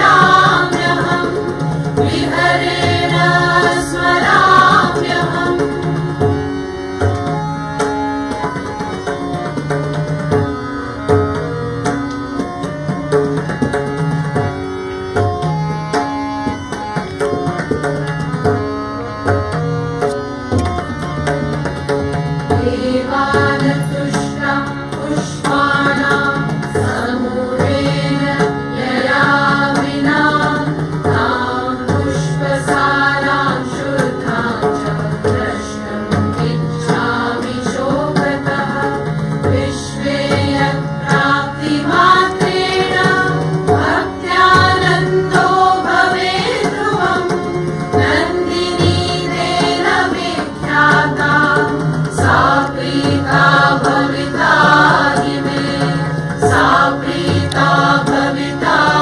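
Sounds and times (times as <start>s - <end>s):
voices singing a devotional song: 0.0s - 6.8s, 22.5s - 59.0s
hand drum rhythm: 0.0s - 14.6s, 17.2s - 59.0s.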